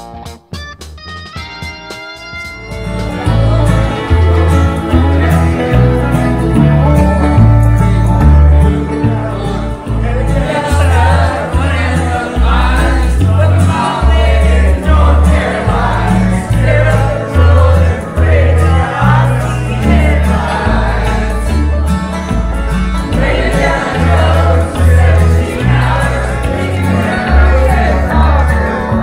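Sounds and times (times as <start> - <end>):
country backing track: 0.0 - 29.0
group of people singing: 3.1 - 6.6, 8.8 - 22.0, 22.8 - 29.0.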